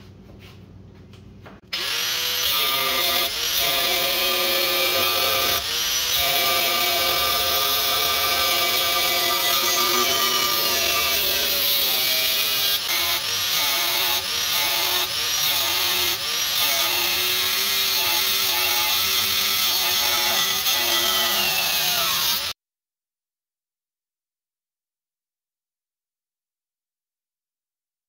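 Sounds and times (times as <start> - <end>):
power tool cutting steel: 1.7 - 22.6.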